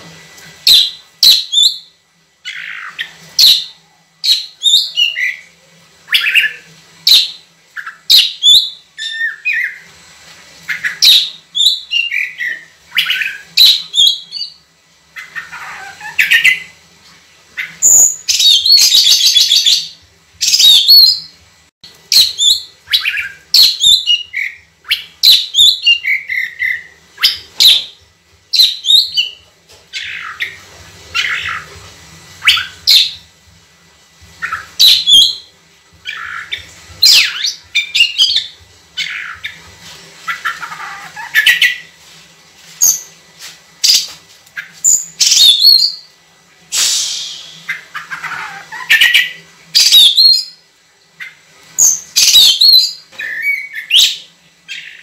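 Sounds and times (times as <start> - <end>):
bird whistling song: 0.6 - 5.5, 6.1 - 9.8, 10.7 - 14.6, 22.1 - 29.4, 32.4 - 33.2, 34.4 - 39.6, 44.8 - 46.1, 46.7 - 50.6, 51.2 - 55.0
harsh scratchy bird call: 46.7 - 50.4.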